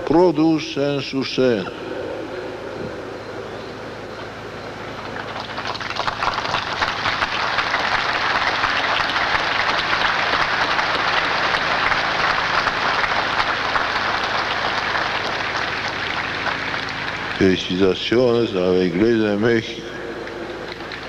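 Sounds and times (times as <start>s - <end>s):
large crowd applauding: 5.0s - 18.8s, 20.2s - 21.0s.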